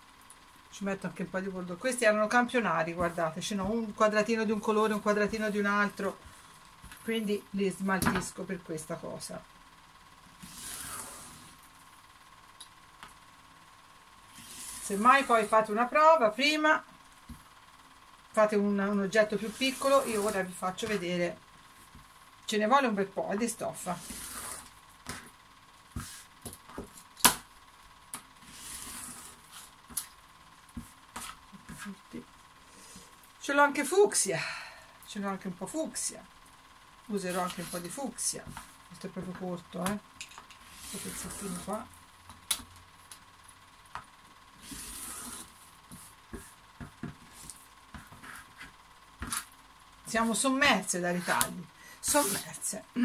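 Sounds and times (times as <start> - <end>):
rotary cutter slicing fabric: 10.4 - 11.6, 14.3 - 15.7, 19.2 - 21.0, 23.9 - 25.3, 28.4 - 30.0.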